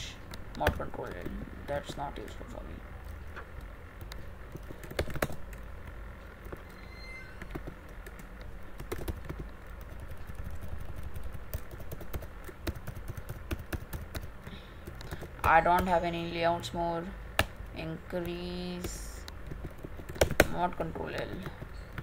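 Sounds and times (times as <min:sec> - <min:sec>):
low steady hum: 0:00.0 - 0:22.0
computer keyboard typing: 0:04.0 - 0:06.7, 0:07.4 - 0:16.0, 0:17.4 - 0:22.0.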